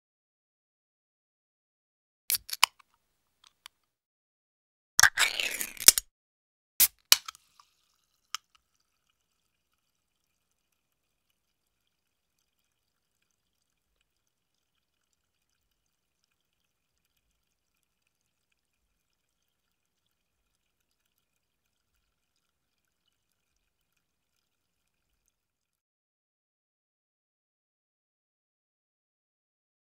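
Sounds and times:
can opening click: 6.8s - 7.4s
soda fizzing in can: 6.8s - 25.5s.

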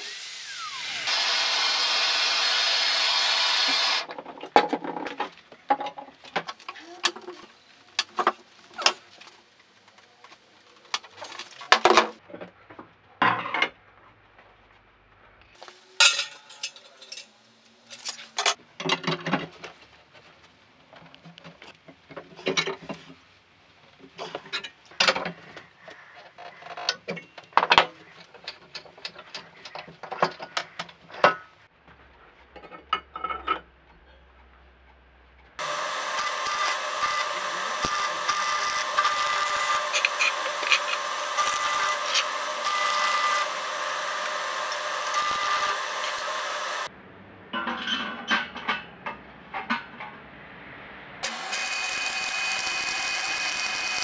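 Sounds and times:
welding arc sizzling and crackling: 35.6s - 46.9s, 51.2s - 54.0s.

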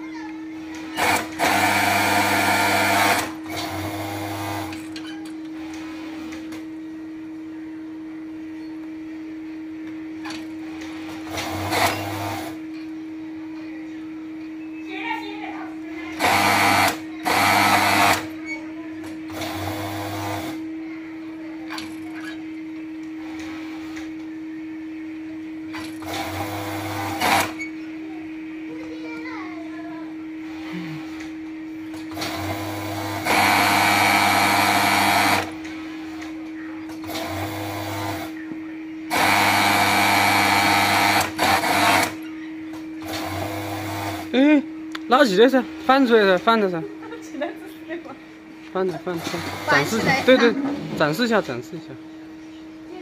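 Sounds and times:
steady hum: 0.0s - 53.0s
serger sewing machine stitching: 1.0s - 4.8s, 11.2s - 12.6s, 16.2s - 18.3s, 19.3s - 20.6s, 26.0s - 27.6s, 32.1s - 35.5s, 37.0s - 38.3s, 39.1s - 42.2s, 43.0s - 44.3s, 49.1s - 50.4s.

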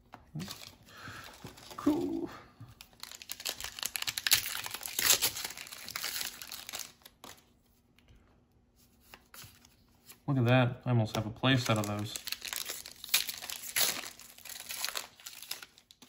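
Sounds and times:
foil wrapper crinkling and tearing: 2.8s - 7.5s, 11.5s - 16.0s.

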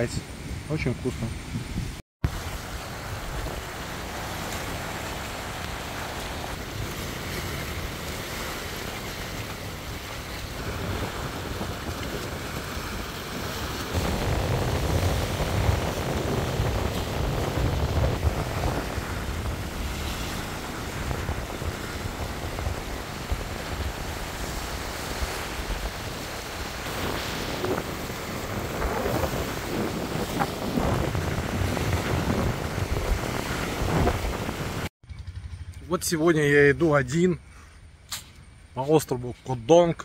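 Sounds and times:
wind buffeting microphone: 0.0s - 34.9s
sea waves washing on rocks: 2.2s - 34.9s.

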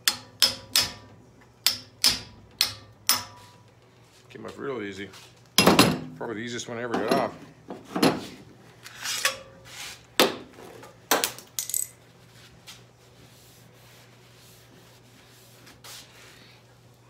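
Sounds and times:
metal tools clinking: 11.6s - 12.0s.

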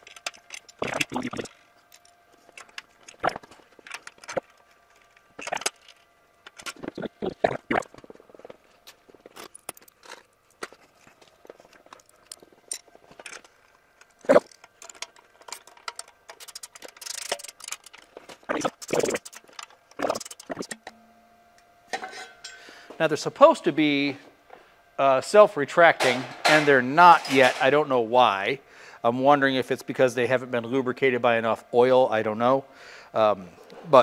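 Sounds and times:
faint steady hum: 0.0s - 34.0s.

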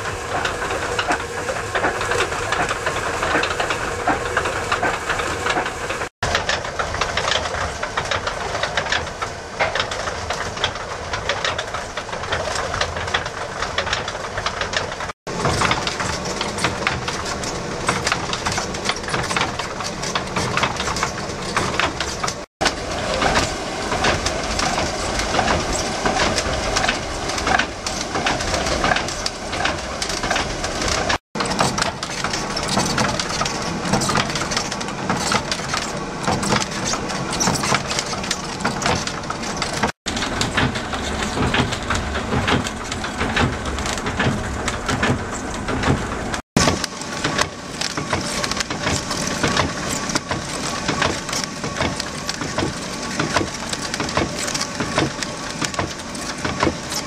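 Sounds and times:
mill machinery grinding: 0.0s - 57.0s.

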